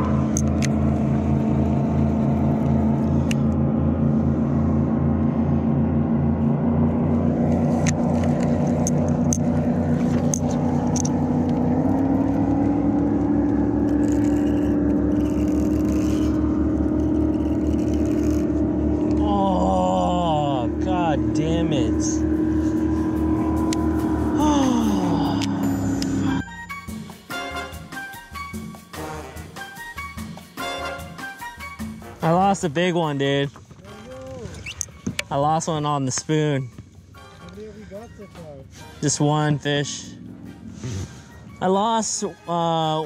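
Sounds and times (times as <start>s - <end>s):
engine running under load: 0.0s - 26.8s, 38.8s - 42.4s.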